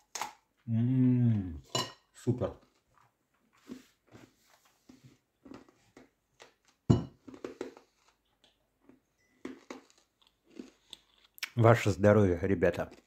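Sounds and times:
chewing dry rusk crunches: 5.4 - 11.6, 12.7 - 13.0.

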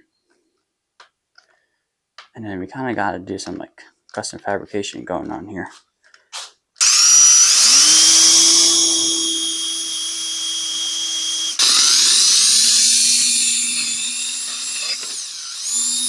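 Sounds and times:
drill bit squealing in metal: 6.8 - 16.0
drill whining through sheet metal: 6.8 - 16.0.

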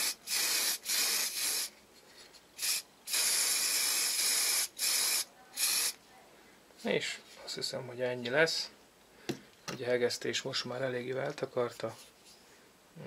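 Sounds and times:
spray paint can hissing: 0.0 - 1.7, 2.6 - 6.0.

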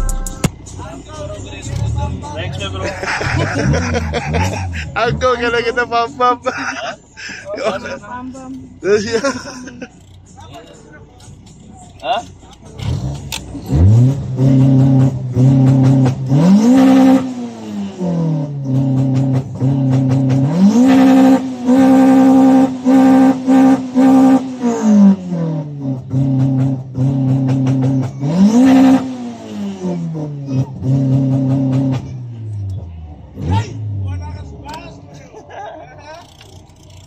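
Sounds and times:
car engine revving against limiter: 1.6 - 5.8, 12.8 - 34.2.

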